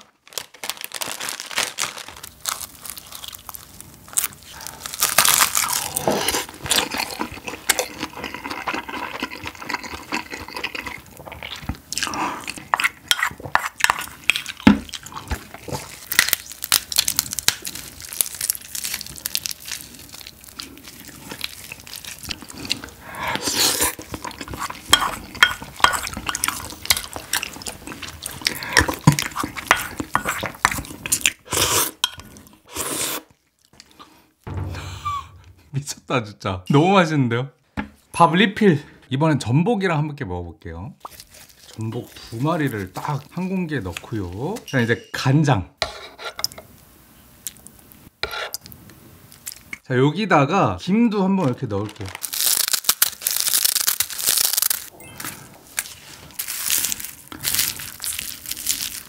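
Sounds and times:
dry seaweed crunching: 0:00.0 - 0:06.9, 0:15.7 - 0:22.9, 0:51.4 - 0:54.9, 0:55.7 - 0:59.0
plastic packet crinkling: 0:00.0 - 0:06.9, 0:15.6 - 0:22.9, 0:51.4 - 0:59.0
soft chewing: 0:41.0 - 0:44.6
spoon scraping ceramic bowl: 0:48.2 - 0:48.6.

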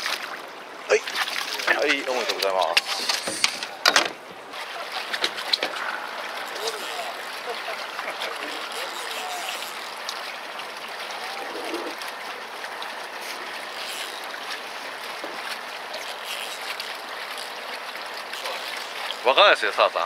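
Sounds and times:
seawater lapping against boat hull: 0:00.0 - 0:19.8.

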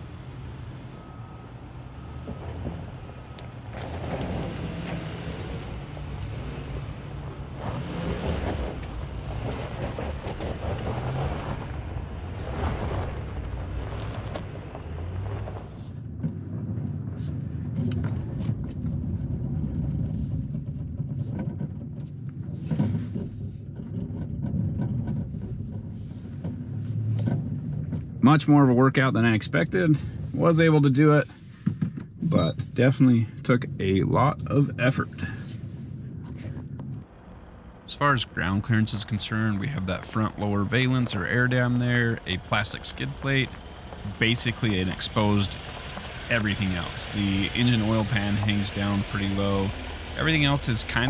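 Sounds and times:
engine revving under load: 0:00.0 - 0:16.9, 0:35.2 - 0:51.0
rushing noise: 0:37.0 - 0:51.0.

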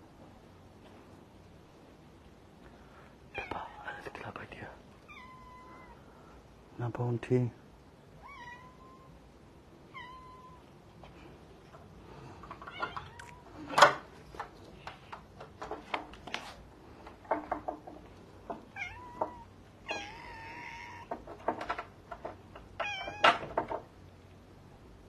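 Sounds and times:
cat meowing: 0:05.0 - 0:06.0, 0:08.2 - 0:09.2, 0:09.9 - 0:10.7, 0:12.6 - 0:13.7, 0:18.7 - 0:21.2, 0:22.8 - 0:23.4
sharp knocks and taps: 0:17.0 - 0:19.4, 0:21.1 - 0:23.9.

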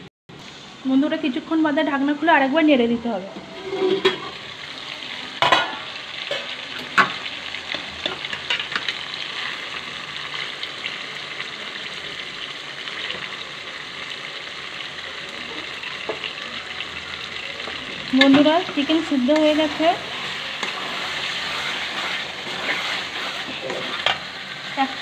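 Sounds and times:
curry sizzling in a pan: 0:00.3 - 0:25.0
spatula stirring and scraping: 0:03.4 - 0:04.4, 0:17.6 - 0:24.8.

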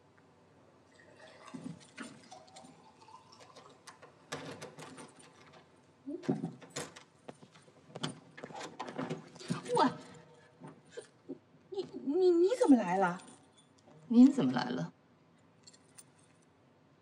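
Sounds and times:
light household clicks and knocks: 0:03.9 - 0:10.9.

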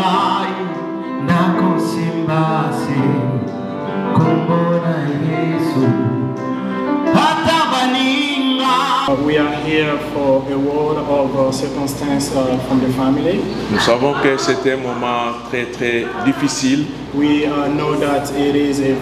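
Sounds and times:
person singing: 0:00.0 - 0:10.5
upright piano playing: 0:00.0 - 0:19.0.

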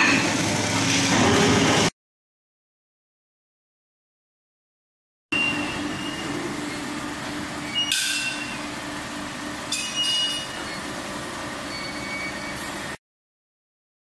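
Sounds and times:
machine tools humming: 0:05.4 - 0:13.0
high-pitched metallic squeal: 0:07.6 - 0:08.7, 0:09.7 - 0:11.0, 0:11.6 - 0:12.9
whistling squeal: 0:11.7 - 0:12.7.

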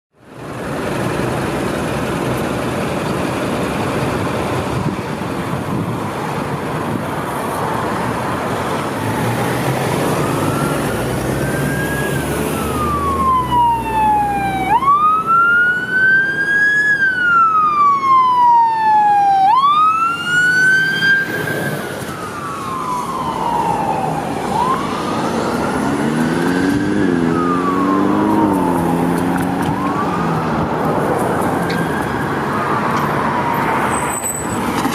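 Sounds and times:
road traffic noise: 0:00.1 - 0:34.9
fire engine siren wailing: 0:07.4 - 0:34.0
lower warbling siren tone: 0:08.9 - 0:30.8.

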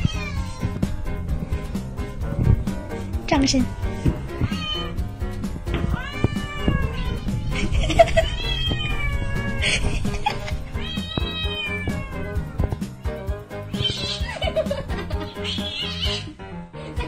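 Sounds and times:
cat meowing: 0:00.0 - 0:00.8, 0:04.1 - 0:05.0, 0:05.8 - 0:09.6, 0:10.7 - 0:12.5, 0:13.7 - 0:14.4, 0:15.2 - 0:16.3
background music: 0:00.0 - 0:17.0.

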